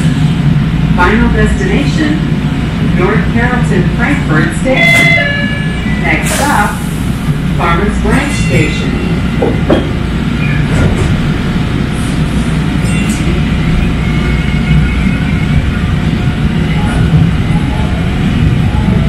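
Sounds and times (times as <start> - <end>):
rail car rumbling on track: 0.0 - 19.0.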